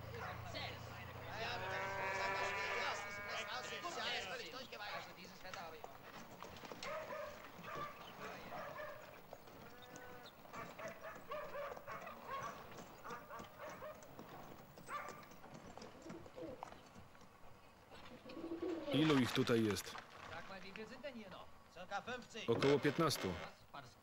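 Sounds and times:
small dog barking: 0:06.8 - 0:09.2, 0:10.5 - 0:14.1, 0:14.9 - 0:15.2.

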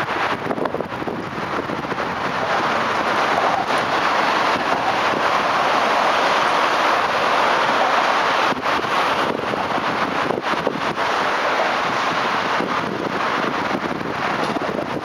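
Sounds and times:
high-speed train passing: 0:00.0 - 0:15.0.

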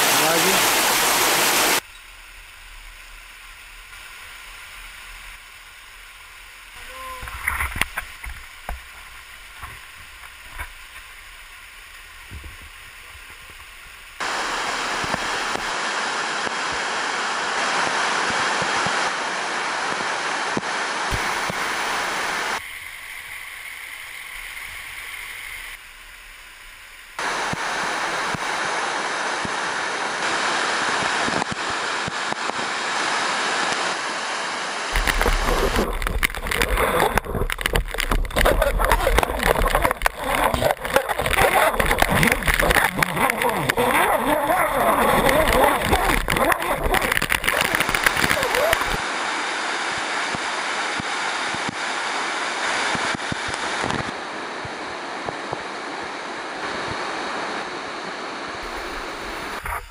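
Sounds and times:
waterfall rushing over rock: 0:00.0 - 0:59.9
rumble on the microphone: 0:34.9 - 0:49.0.

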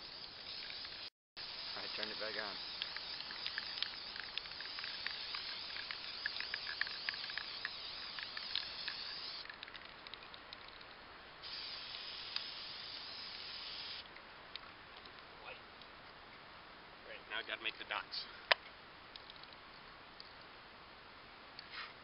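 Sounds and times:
spray paint can hissing: 0:00.0 - 0:09.6, 0:11.4 - 0:14.0.

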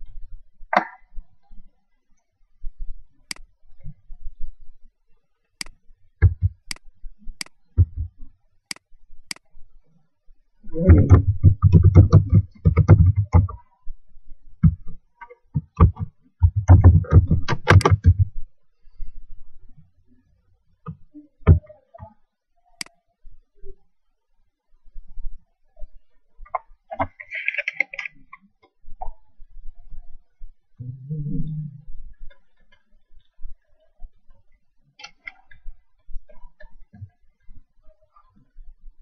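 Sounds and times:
laptop keyboard typing: 0:10.8 - 0:13.6, 0:15.8 - 0:18.3.

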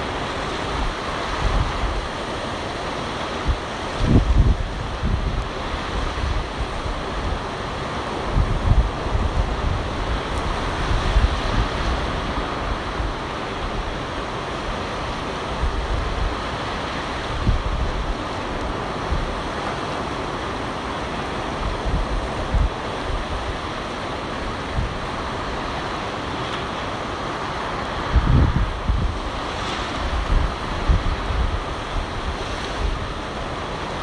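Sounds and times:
ocean surf on beach: 0:00.0 - 0:34.0
wind buffeting microphone: 0:03.4 - 0:14.0, 0:14.7 - 0:19.6, 0:21.4 - 0:23.8, 0:24.4 - 0:26.0, 0:27.9 - 0:34.0.

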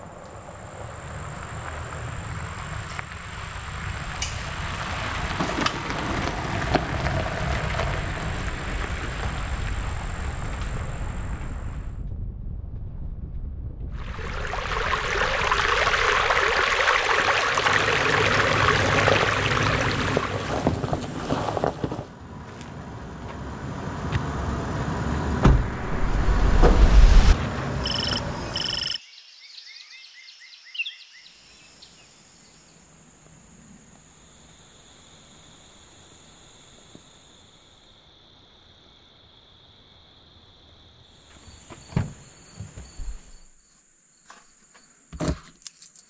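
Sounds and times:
loud rushing noise: 0:25.3 - 0:27.9
heavy thump: 0:25.4 - 0:27.3
short beeps: 0:27.8 - 0:29.0
lower insect trill: 0:27.8 - 0:45.0
insects trilling: 0:27.8 - 0:45.1.

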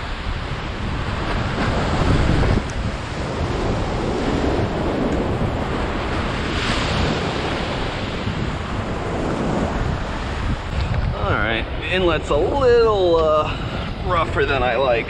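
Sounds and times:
wind buffeting microphone: 0:00.0 - 0:15.0
wave crashing with a splash: 0:00.9 - 0:10.8.

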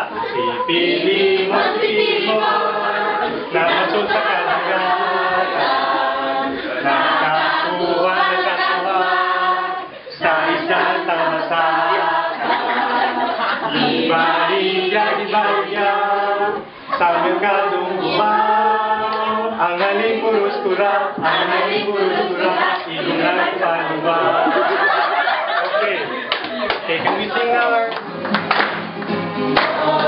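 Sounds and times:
students singing unaccompanied: 0:00.0 - 0:27.8, 0:29.5 - 0:30.0.

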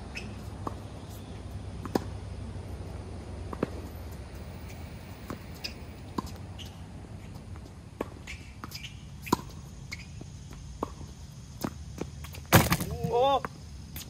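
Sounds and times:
footsteps on tennis court: 0:02.8 - 0:12.4.

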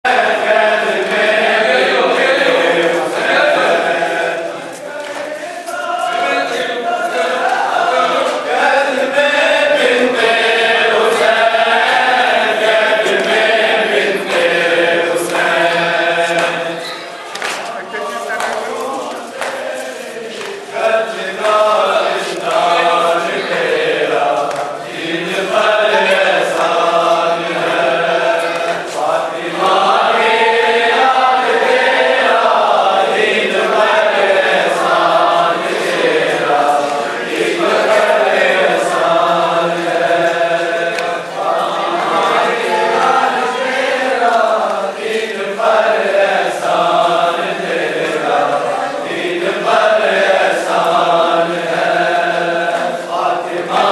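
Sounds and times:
crowd of men chanting: 0:00.0 - 0:53.9
hands slapping chests: 0:16.3 - 0:16.6, 0:17.3 - 0:17.8, 0:24.4 - 0:24.7.

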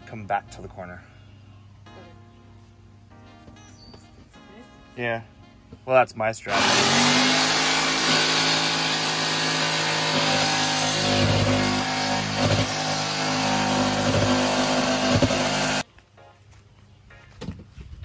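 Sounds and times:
electric jigsaw cutting metal: 0:06.5 - 0:15.8.

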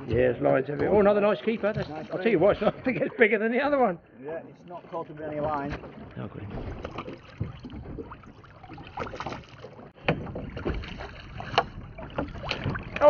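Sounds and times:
sharp knocks and clicks: 0:05.4 - 0:13.0.

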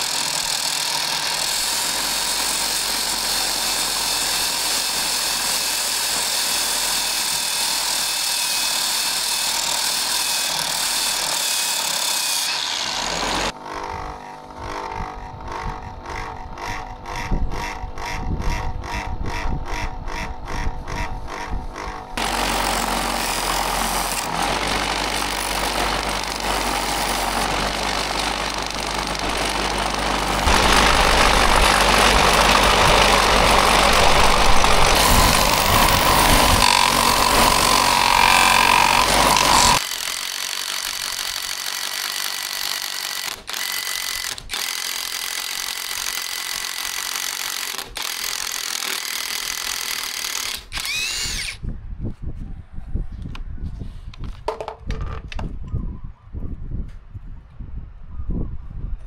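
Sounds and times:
cordless drill boring into plywood: 0:00.0 - 0:51.6
loud steady machine noise: 0:12.5 - 0:51.6.

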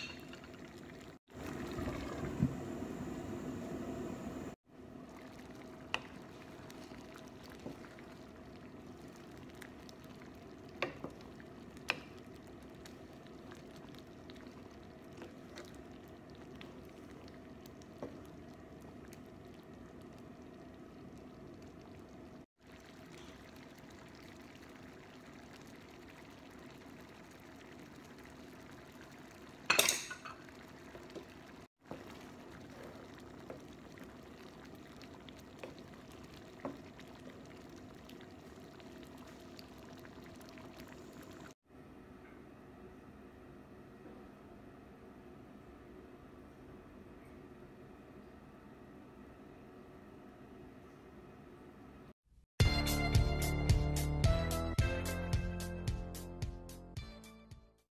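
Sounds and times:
thick soup bubbling in a pan: 0:00.0 - 0:41.6
wooden spatula stirring: 0:05.2 - 0:10.0, 0:31.8 - 0:34.1.

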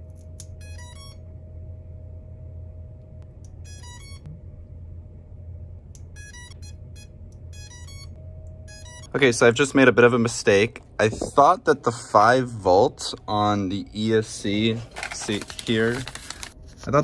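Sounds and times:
faint steady hum: 0:00.0 - 0:17.0
person speaking: 0:09.1 - 0:17.0.

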